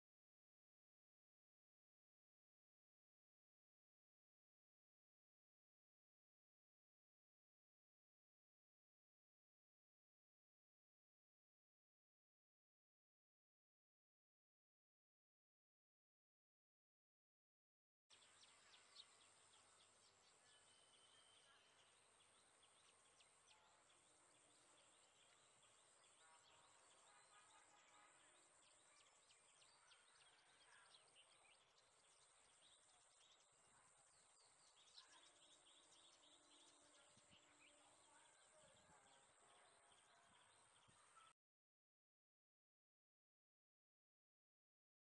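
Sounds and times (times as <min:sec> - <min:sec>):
bird chirps: 0:18.1 - 0:41.4.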